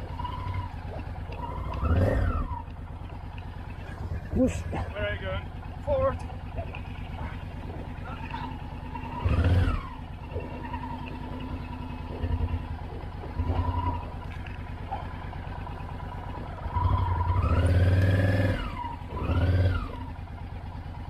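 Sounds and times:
motorcycle engine idling and revving: 0.0s - 21.0s.

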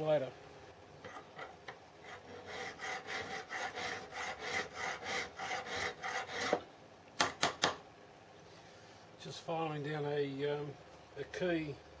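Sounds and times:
file rasping on metal: 2.0s - 6.6s.

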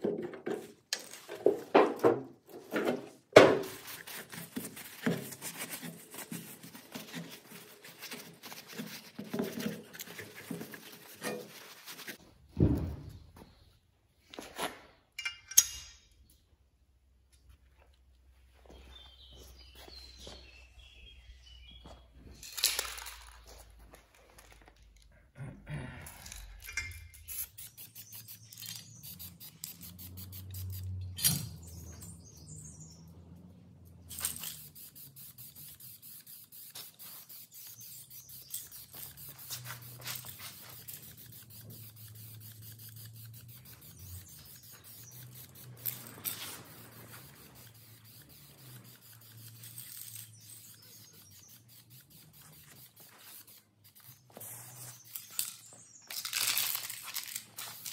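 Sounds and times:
aerosol spray can hissing: 27.5s - 31.0s, 34.1s - 55.2s.

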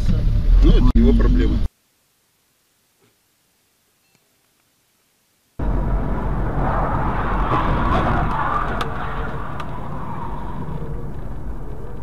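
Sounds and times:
car engine and tyre rumble: 0.0s - 1.7s, 5.6s - 12.0s.

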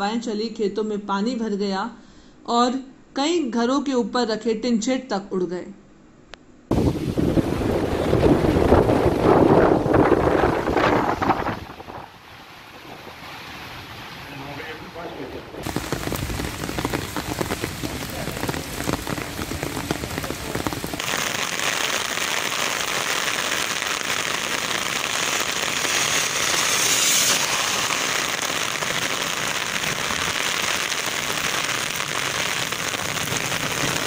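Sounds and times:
heavy rain on a road: 6.8s - 34.0s.

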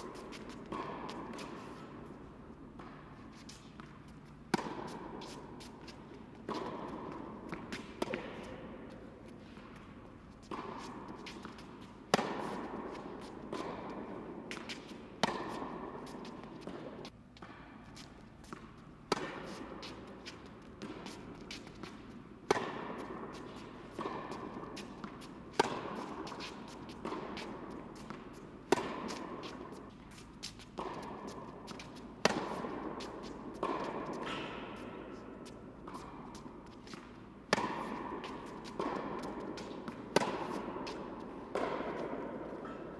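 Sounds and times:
racket hitting tennis ball: 0.0s - 42.9s.

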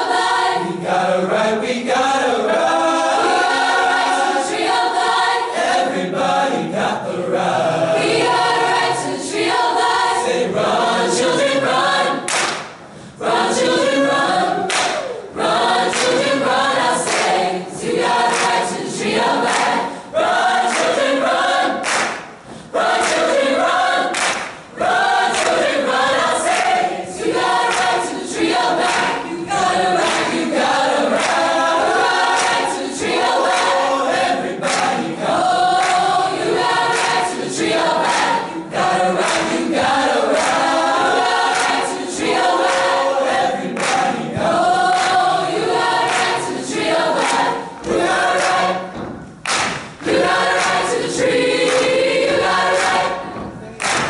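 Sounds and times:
choir singing in harmony: 0.0s - 54.0s
hand claps on the beat: 12.2s - 12.8s, 14.7s - 15.2s, 15.8s - 16.4s, 17.0s - 18.8s, 19.4s - 19.9s, 20.6s - 21.1s, 21.7s - 26.8s, 27.4s - 33.9s, 34.5s - 35.1s, 35.7s - 54.0s.

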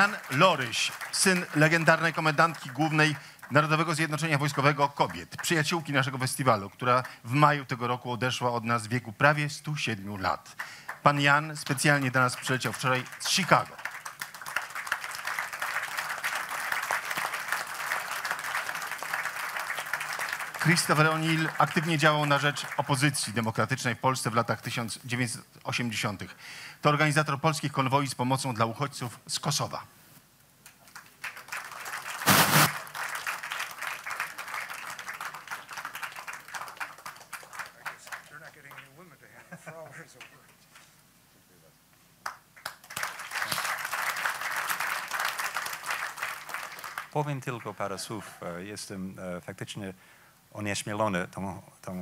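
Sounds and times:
audience applauding: 0.0s - 5.8s, 10.6s - 23.1s, 30.8s - 39.4s, 42.2s - 48.0s.

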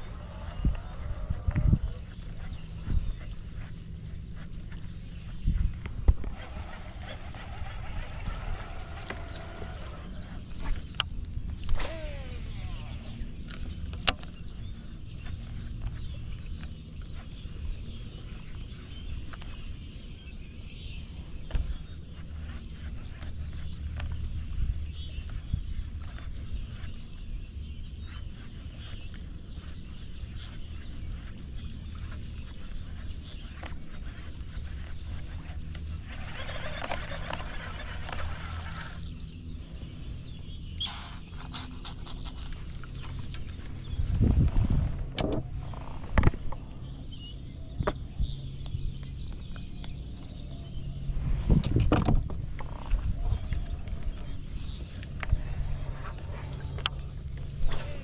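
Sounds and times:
small motor humming: 0.0s - 19.9s, 21.4s - 47.2s
birds chirping: 0.0s - 58.0s
steady low rumble: 0.0s - 58.0s.

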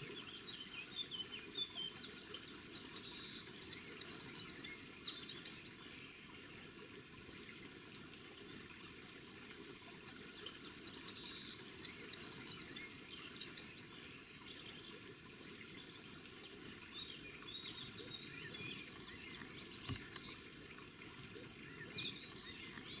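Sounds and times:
birds chirping and singing: 16.6s - 23.0s.

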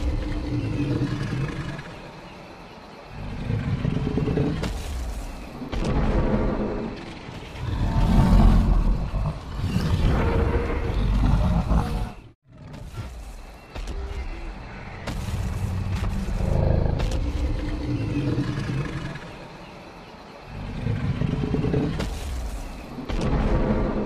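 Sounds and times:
deep dinosaur roar: 5.9s - 12.3s.

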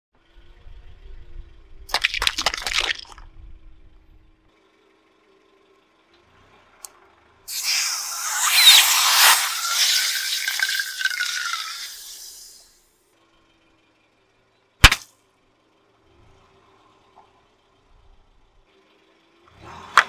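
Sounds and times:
loud hissing with faint whistle: 7.5s - 12.8s
hot-water bottle bursting pop: 14.8s - 15.0s.

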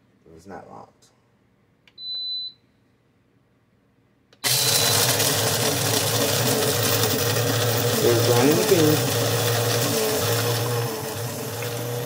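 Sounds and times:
short electronic beep: 2.0s - 2.6s
grinder grinding coffee beans: 4.4s - 12.0s.

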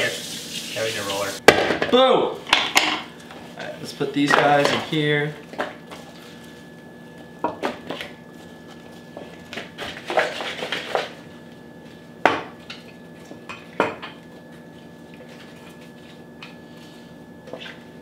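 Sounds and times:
utensils clattering on a countertop: 2.5s - 3.1s.

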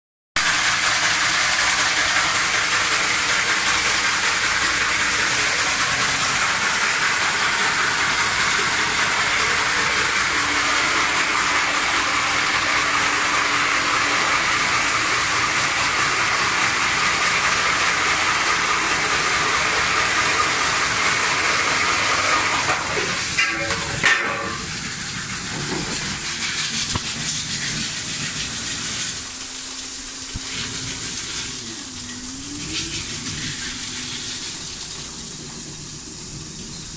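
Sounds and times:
knocks and rattles: 22.7s - 29.2s.

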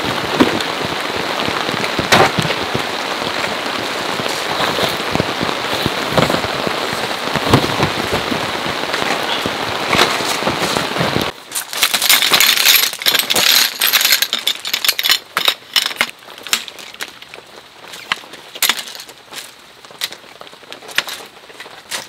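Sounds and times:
metal poles clattering and clicking: 11.5s - 17.3s, 17.9s - 20.2s, 20.8s - 22.0s.

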